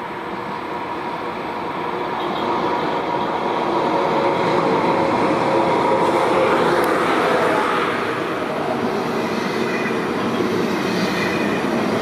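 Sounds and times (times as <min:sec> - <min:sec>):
high-speed train approaching: 0:00.0 - 0:12.0.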